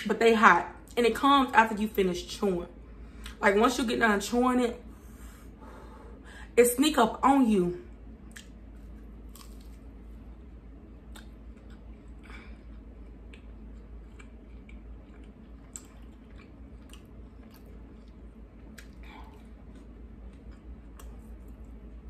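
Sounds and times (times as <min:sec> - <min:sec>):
faint low hum: 0:00.0 - 0:22.0
person chewing crispy food: 0:08.2 - 0:22.0.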